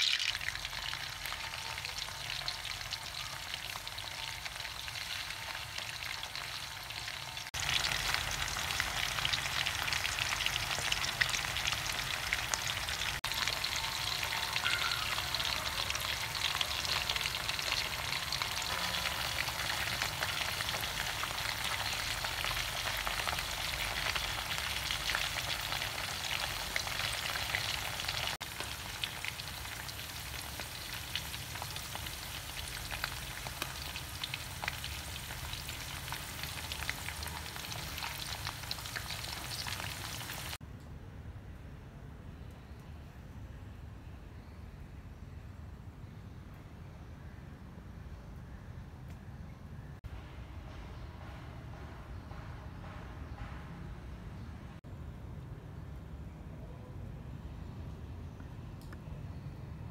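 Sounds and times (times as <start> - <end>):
food sizzling in oil: 0.0 - 40.6.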